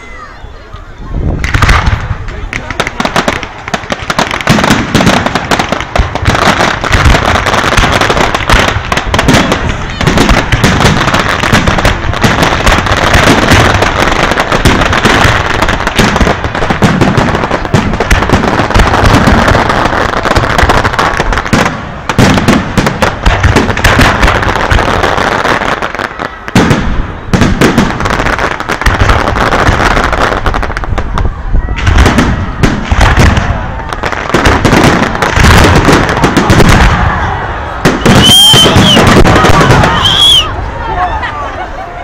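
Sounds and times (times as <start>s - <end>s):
fireworks bangs and crackles: 0.0s - 42.0s.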